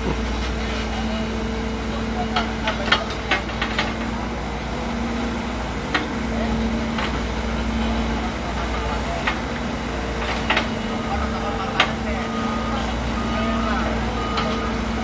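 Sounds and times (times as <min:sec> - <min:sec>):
diesel engine running: 0:00.0 - 0:15.0.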